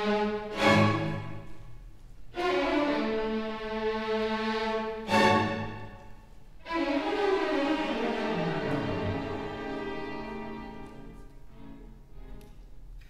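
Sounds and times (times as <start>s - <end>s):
string orchestra bowed chords: 0.0s - 1.7s, 2.3s - 12.7s.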